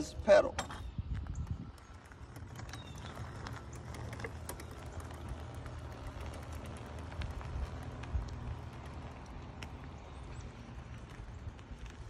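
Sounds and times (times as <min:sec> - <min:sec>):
tyre noise on asphalt: 0:00.0 - 0:12.0
bicycle drivetrain clicks: 0:00.8 - 0:12.0
low steady rumble: 0:00.8 - 0:12.0.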